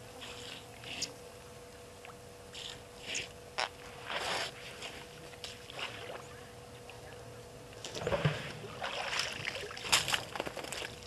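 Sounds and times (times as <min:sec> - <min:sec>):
faint steady hum: 0:00.0 - 0:11.0
water splashing and sloshing: 0:03.6 - 0:07.1, 0:07.7 - 0:11.0.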